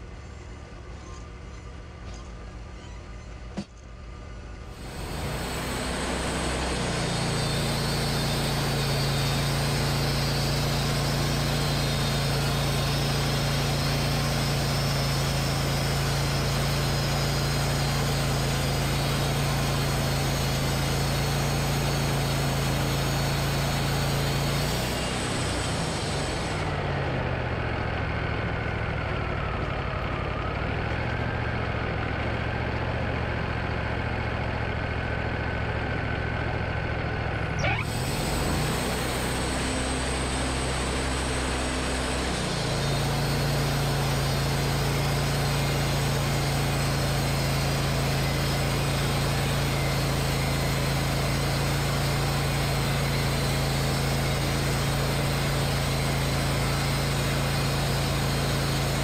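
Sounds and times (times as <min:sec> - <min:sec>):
engine whine: 0:00.0 - 0:59.0
sawmill engine running: 0:00.0 - 0:59.0
band blade hissing through wood: 0:04.8 - 0:26.6.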